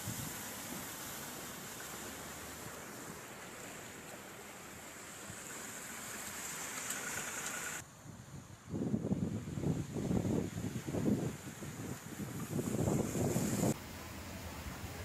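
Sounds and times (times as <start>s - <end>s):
heavy rain pouring: 0.0s - 7.8s
water running over road: 0.0s - 7.8s, 9.4s - 15.0s.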